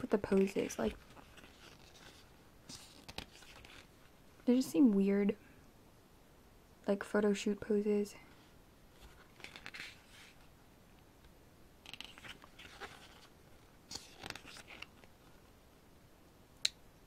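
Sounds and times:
book pages turning: 0:00.0 - 0:03.9, 0:09.0 - 0:10.5, 0:11.8 - 0:15.5.

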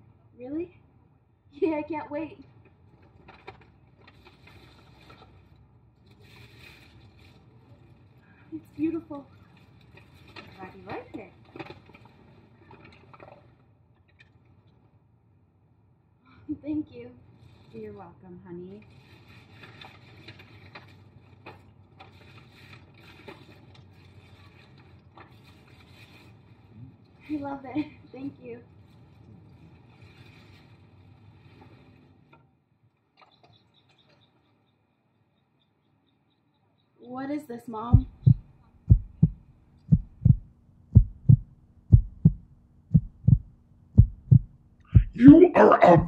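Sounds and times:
tissue paper crinkling: 0:06.0 - 0:08.2, 0:18.8 - 0:26.7, 0:28.8 - 0:31.9
faint low rumble: 0:37.9 - 0:46.0
heartbeat thumps: 0:37.9 - 0:46.0.

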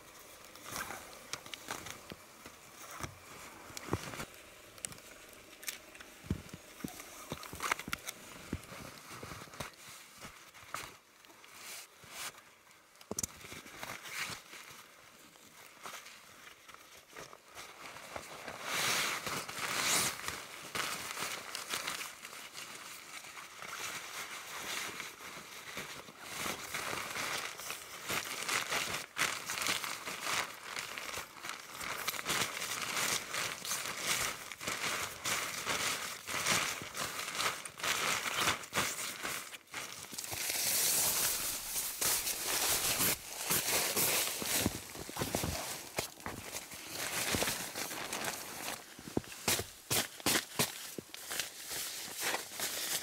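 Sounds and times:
fabric crinkling and rustling: 0:00.0 - 0:53.0.

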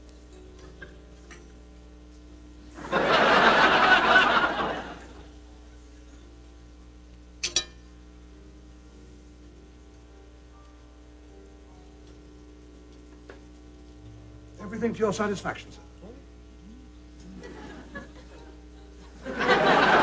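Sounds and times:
studio audience laughing: 0:02.8 - 0:05.3, 0:17.3 - 0:20.0
cutlery clinking on a plate: 0:07.4 - 0:07.8.

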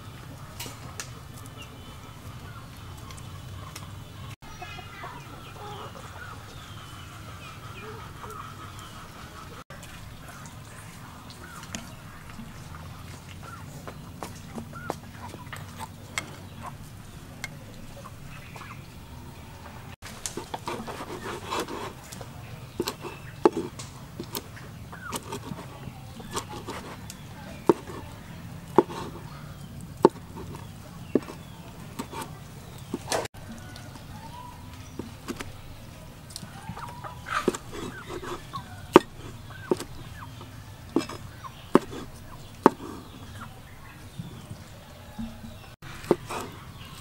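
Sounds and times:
chickens clucking: 0:00.0 - 0:47.0
cleaver chopping on cutting board: 0:27.6 - 0:28.1, 0:28.8 - 0:29.2, 0:30.0 - 0:30.6, 0:31.2 - 0:31.4, 0:39.0 - 0:40.0, 0:41.8 - 0:43.0.

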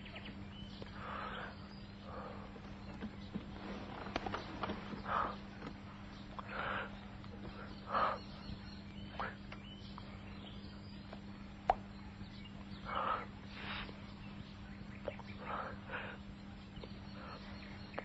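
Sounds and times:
low hum: 0:00.0 - 0:18.0
people breathing heavily while kissing: 0:12.9 - 0:14.1.

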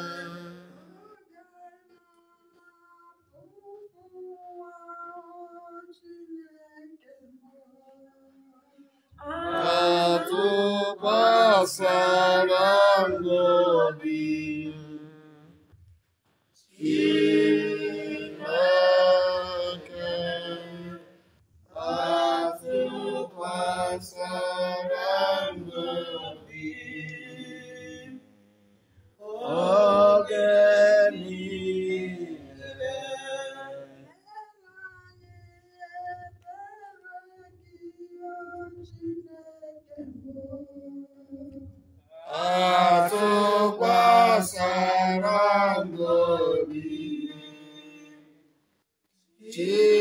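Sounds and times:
person singing unaccompanied: 0:00.0 - 0:07.0, 0:09.2 - 0:15.5, 0:21.8 - 0:28.2.

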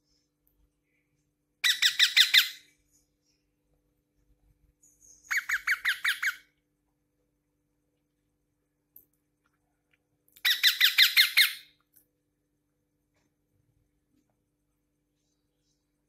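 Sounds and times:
parakeet calling: 0:01.6 - 0:02.7, 0:05.2 - 0:06.5, 0:10.4 - 0:11.7.

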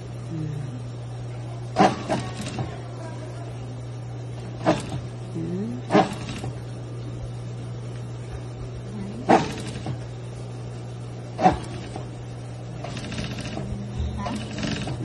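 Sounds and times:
sewing machine motor humming: 0:01.8 - 0:02.8, 0:04.5 - 0:05.1, 0:05.9 - 0:06.7, 0:09.2 - 0:10.1, 0:11.4 - 0:15.0
sewing machine clunks: 0:09.2 - 0:10.0, 0:11.4 - 0:12.1, 0:12.8 - 0:15.0.

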